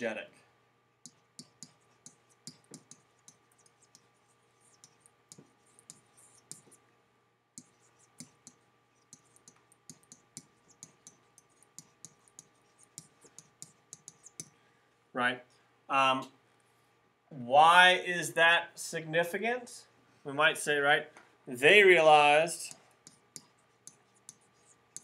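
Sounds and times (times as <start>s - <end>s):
faint steady hum: 0.0s - 25.0s
stylus tapping on pen tablet: 1.0s - 4.1s, 4.8s - 6.8s, 7.6s - 14.6s, 23.0s - 25.0s.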